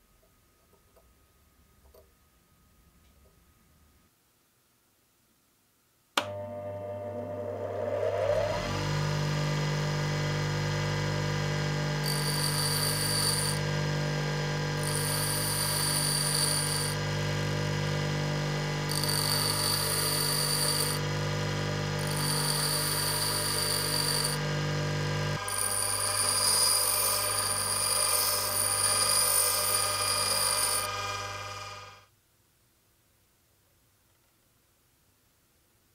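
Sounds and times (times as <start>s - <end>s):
bench grinder motor humming: 6.3s - 32.1s
drill bit grinding rasp: 12.0s - 13.7s, 14.8s - 17.0s, 18.7s - 24.7s, 25.3s - 32.0s.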